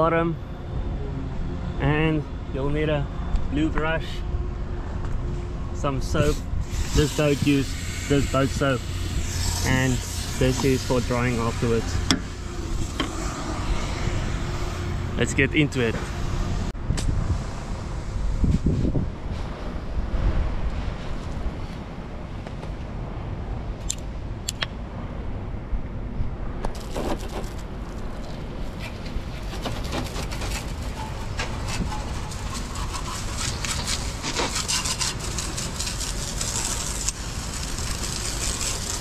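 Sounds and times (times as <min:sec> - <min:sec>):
wind rumbling on microphone: 0:02.3 - 0:39.0
hose water spraying: 0:06.2 - 0:15.9, 0:28.1 - 0:39.0.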